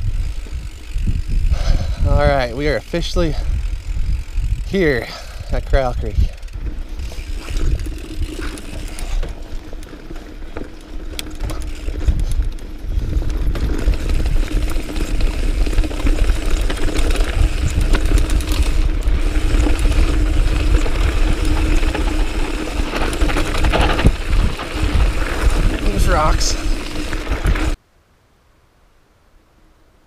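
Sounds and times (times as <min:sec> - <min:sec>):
bicycle tyre noise on dirt: 0:00.0 - 0:27.8
bike rattles and clicks: 0:00.0 - 0:27.8
wind rumbling on microphone: 0:00.0 - 0:27.8.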